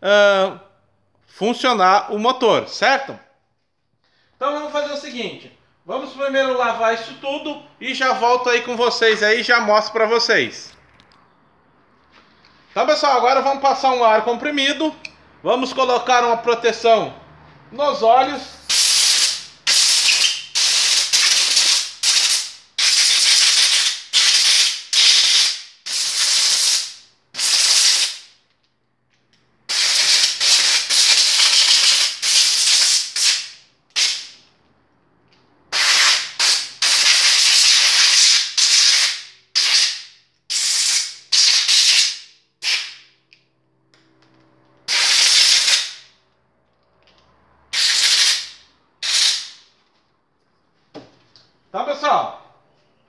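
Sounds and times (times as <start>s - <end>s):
compressed air blasts: 18.6s - 28.4s, 29.7s - 34.4s, 35.7s - 43.2s, 44.8s - 46.2s, 47.7s - 49.7s.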